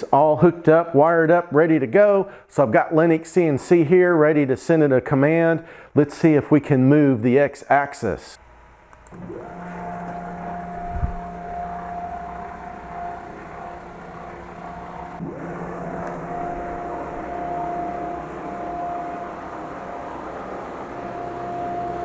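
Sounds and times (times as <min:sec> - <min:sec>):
stepper motor whine: 0:08.4 - 0:22.0.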